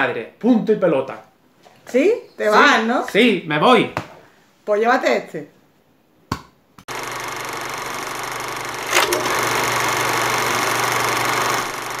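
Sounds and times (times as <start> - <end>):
film projector whirring and clatter: 6.9 - 12.0.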